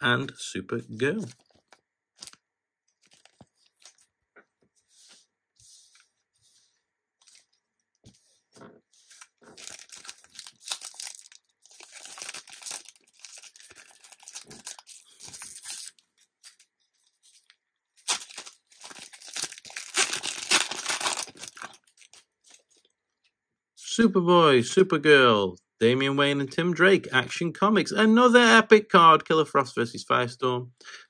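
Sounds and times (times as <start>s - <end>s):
wrapper tearing and crinkling: 1.5s - 2.4s, 3.0s - 4.1s, 9.1s - 16.7s, 17.4s - 22.6s.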